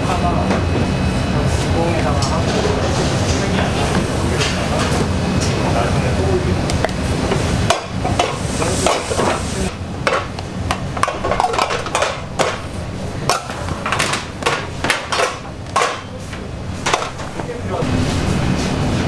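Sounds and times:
hiss: 0:08.2 - 0:09.8
clinks and knocks of utensils: 0:10.1 - 0:12.6.

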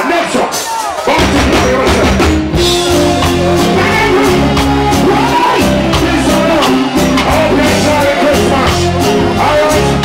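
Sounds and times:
drum beats: 0:00.0 - 0:10.0
live reggae band: 0:00.0 - 0:10.0
bass line: 0:01.1 - 0:10.0
person singing: 0:02.7 - 0:10.0.

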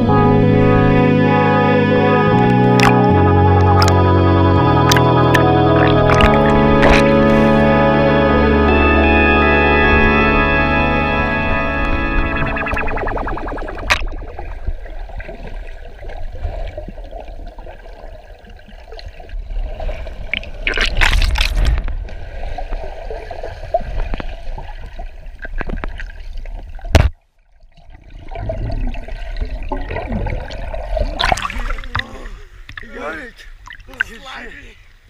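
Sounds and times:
underwater low rumble: 0:00.0 - 0:34.1
gurgling bubbles: 0:04.8 - 0:07.7, 0:12.2 - 0:32.9
rush of bubbles: 0:04.9 - 0:07.6, 0:12.4 - 0:25.0, 0:27.7 - 0:32.9.

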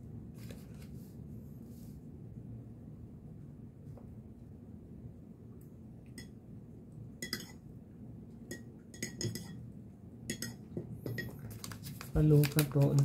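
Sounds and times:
metal spoon clinking in cup: 0:07.2 - 0:07.6, 0:08.5 - 0:09.6, 0:10.3 - 0:11.4.

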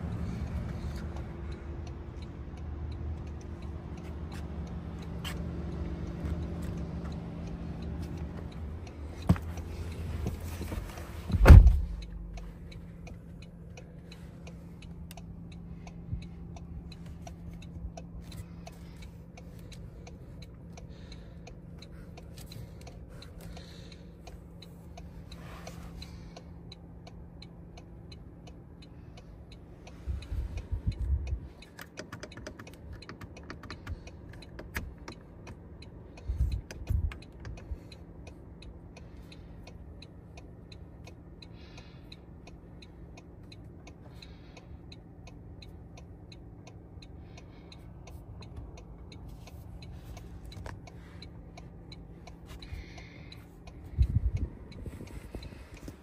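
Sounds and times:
low cabin hum: 0:00.0 - 0:31.9, 0:33.6 - 0:56.0
faint ticking: 0:00.0 - 0:56.0
car door shutting: 0:10.2 - 0:12.0.

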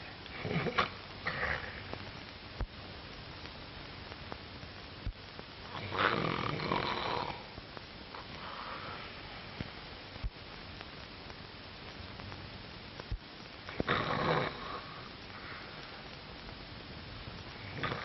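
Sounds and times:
film soundtrack hiss: 0:00.0 - 0:18.0
rasping snore-like breath: 0:05.8 - 0:07.5, 0:13.8 - 0:15.1, 0:17.7 - 0:18.0.

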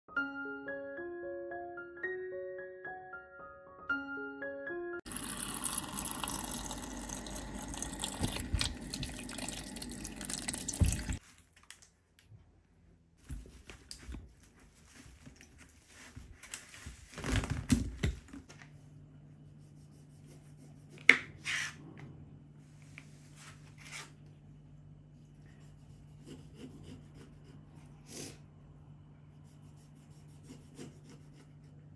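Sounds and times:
tap water pouring into bowl: 0:05.1 - 0:11.2
cloth rubbing and rustling: 0:13.2 - 0:17.7.

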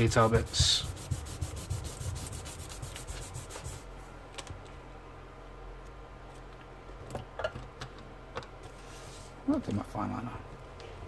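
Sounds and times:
eraser scrubbing on card: 0:00.0 - 0:03.9.

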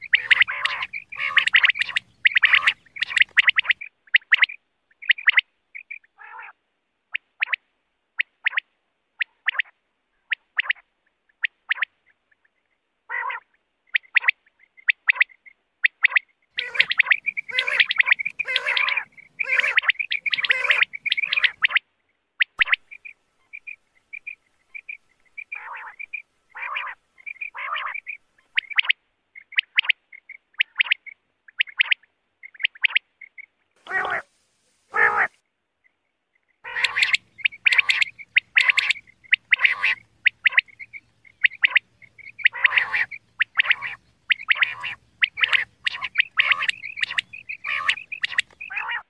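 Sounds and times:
faint overlapping bird calls: 0:00.0 - 0:49.0
quail song: 0:00.0 - 0:49.0
faint soft chirps: 0:13.5 - 0:33.8, 0:35.8 - 0:49.0.

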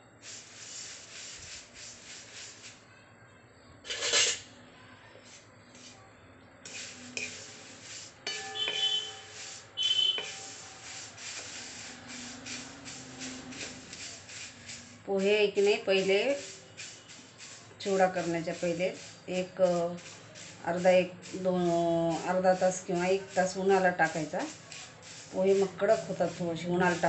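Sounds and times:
spatula scraping flakes in pan: 0:00.2 - 0:02.8, 0:03.9 - 0:04.5, 0:05.2 - 0:06.0, 0:06.6 - 0:27.0
brief ringing tones: 0:08.4 - 0:10.4.

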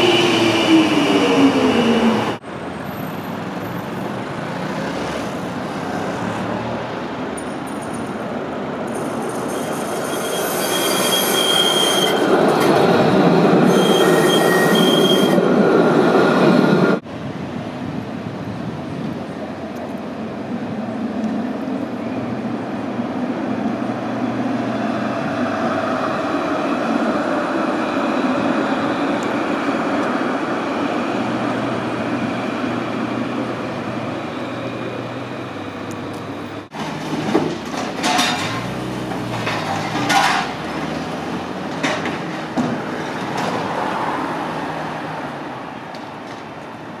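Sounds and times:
street noise: 0:00.0 - 0:47.0
tram rumbling past: 0:00.0 - 0:47.0.

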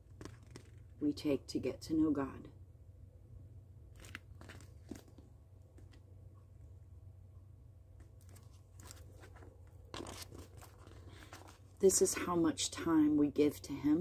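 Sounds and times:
pages rustling and clicking: 0:00.0 - 0:00.9, 0:04.0 - 0:06.0, 0:08.0 - 0:11.8
low steady hum: 0:00.0 - 0:14.0.

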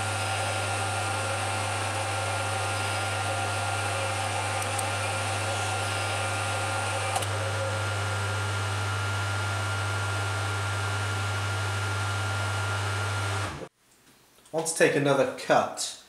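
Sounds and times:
lathe motor humming and whining: 0:00.0 - 0:13.7
click: 0:04.6 - 0:04.9.

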